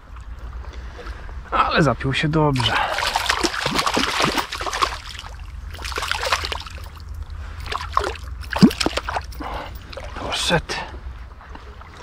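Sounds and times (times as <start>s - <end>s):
water splashing and sloshing: 2.5s - 12.0s
loud sudden splash: 2.6s - 6.8s, 7.8s - 9.2s.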